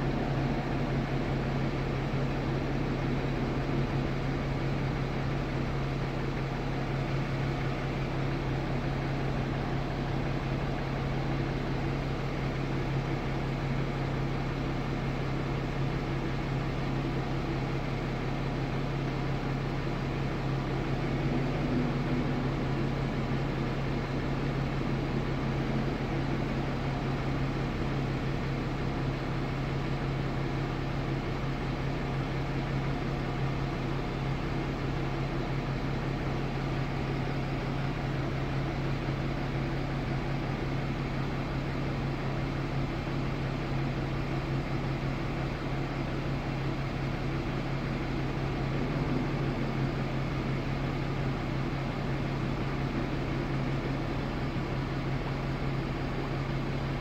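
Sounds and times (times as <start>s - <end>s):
car cabin mechanical hum: 47.5s - 56.4s.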